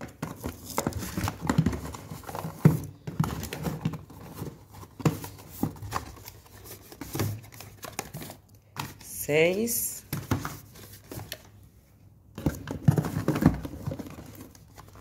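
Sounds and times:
packaging rustling: 0.0 - 9.0, 12.4 - 15.0.

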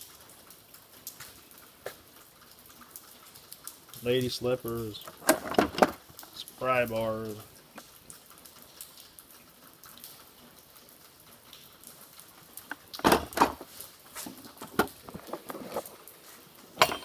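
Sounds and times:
metal tools clanking in a drawer: 16.8 - 17.0.

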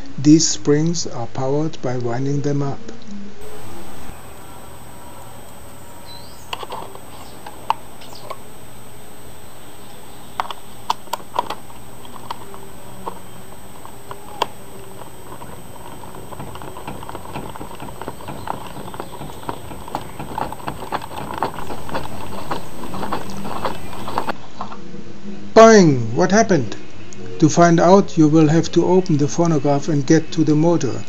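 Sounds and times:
hand crank ratchet clicking: 10.4 - 24.4.

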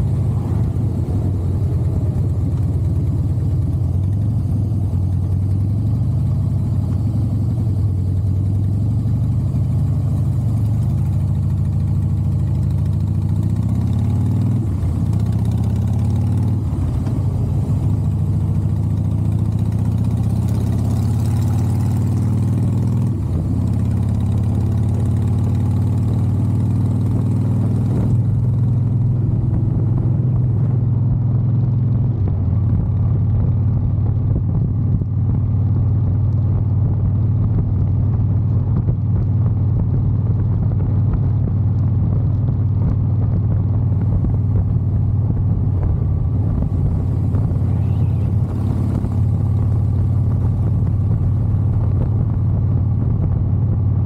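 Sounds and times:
motorcycle engine running: 0.0 - 54.0.

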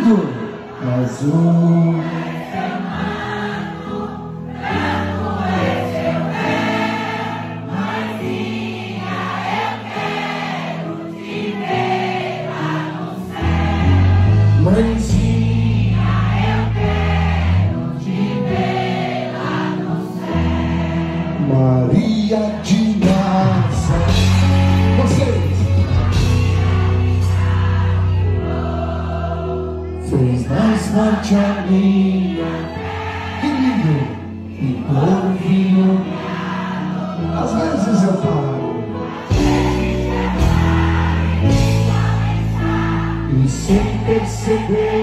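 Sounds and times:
many voices singing together: 0.0 - 45.0
band accompaniment: 13.5 - 17.6, 21.6 - 28.9, 37.5 - 45.0
deep bass line: 23.1 - 28.3.

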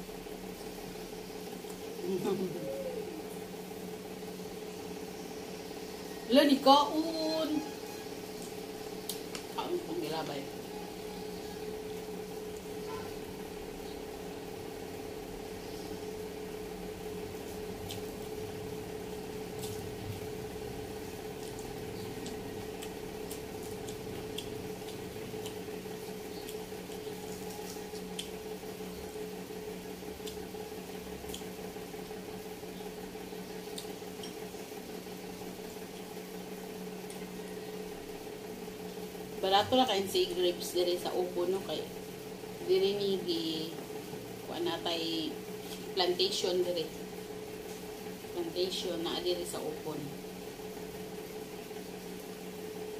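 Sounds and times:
low electrical hum: 0.0 - 52.9
wet chewing: 17.8 - 18.4, 21.0 - 28.4, 30.2 - 30.5, 31.2 - 31.6, 33.7 - 34.4.

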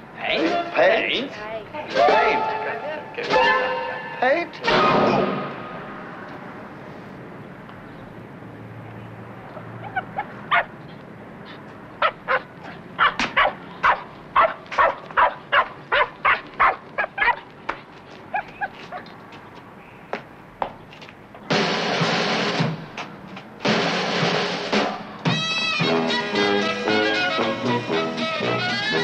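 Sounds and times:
dog yapping: 9.6 - 10.7, 11.5 - 17.4, 18.3 - 19.1.

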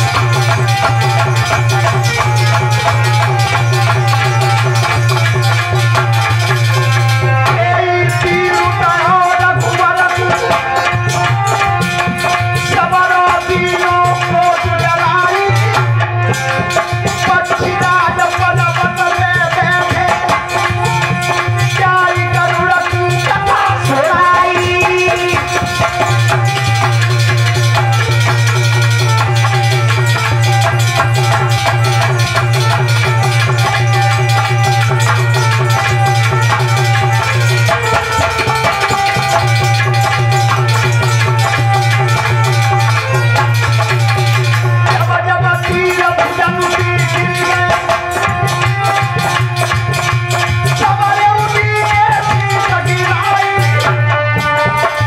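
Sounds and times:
hand drum percussion: 0.0 - 55.0
jangling rattle rhythm: 0.0 - 55.0
man singing into microphone: 6.7 - 26.7, 44.7 - 49.2, 49.8 - 55.0.

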